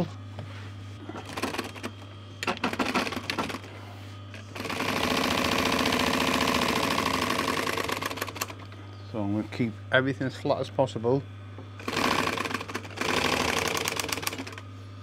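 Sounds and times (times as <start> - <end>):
steady low hum: 0.0 - 15.0
industrial sewing machine stitching: 1.2 - 3.7, 4.4 - 8.6, 11.8 - 14.6.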